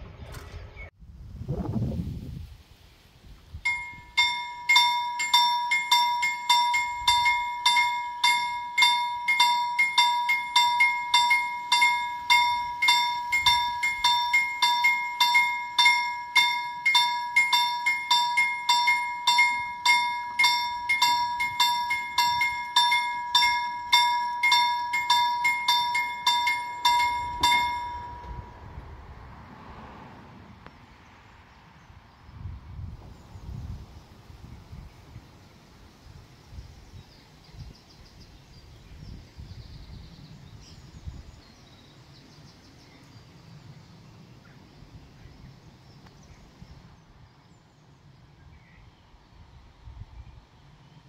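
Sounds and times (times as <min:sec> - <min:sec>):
level crossing warning bell: 0:03.7 - 0:28.8.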